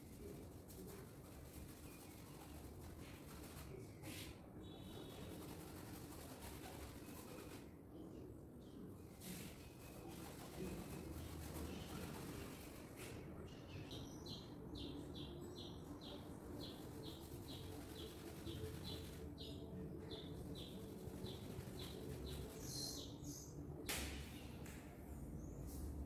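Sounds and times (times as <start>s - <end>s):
bird chirping: 13.5s - 23.6s.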